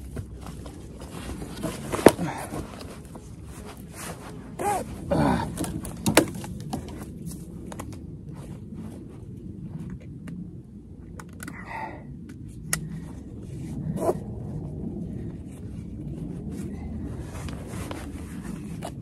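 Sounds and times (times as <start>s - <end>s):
straps and buckles rustling: 0.0s - 10.0s, 13.1s - 14.3s, 15.4s - 19.0s
person grunting: 4.6s - 5.8s.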